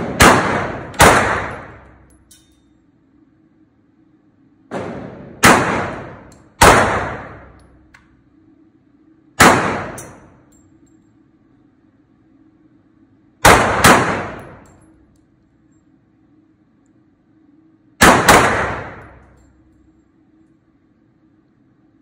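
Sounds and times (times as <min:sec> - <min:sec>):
pistol shots echoing indoors: 0:00.0 - 0:02.6, 0:04.7 - 0:07.9, 0:09.4 - 0:10.6, 0:13.4 - 0:15.2, 0:18.0 - 0:20.0.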